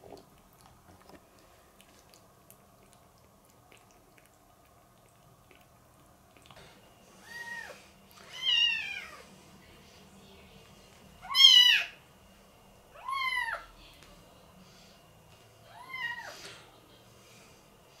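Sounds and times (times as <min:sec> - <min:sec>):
kitten mewing: 0:11.2 - 0:12.0.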